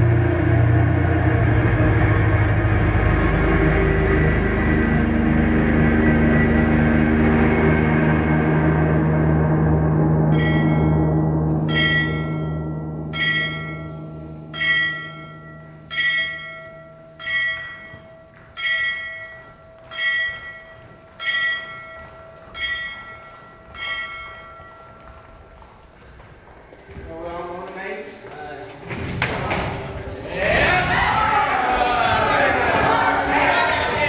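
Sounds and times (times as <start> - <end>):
low sustained drone: 0.0 - 17.2
bell tolling slowly: 0.0 - 26.0.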